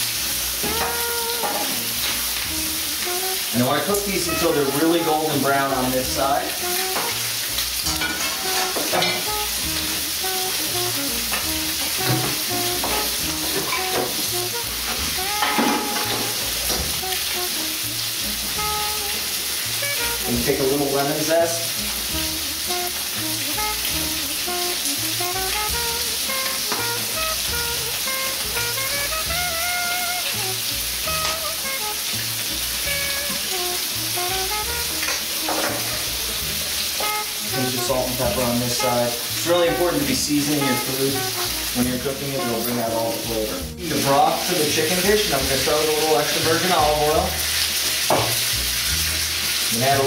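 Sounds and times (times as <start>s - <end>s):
background music with bass line: 0.0s - 50.0s
chicken skin sizzling in a pan: 0.0s - 50.0s.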